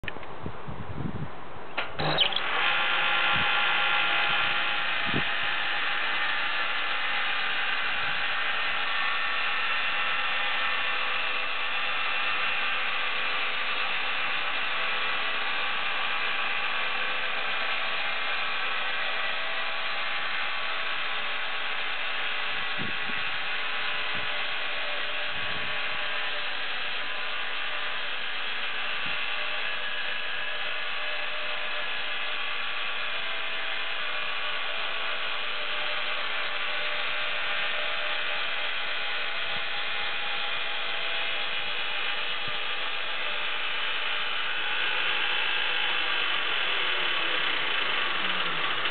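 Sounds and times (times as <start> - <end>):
bandsaw mill sawing log: 1.9 - 48.9.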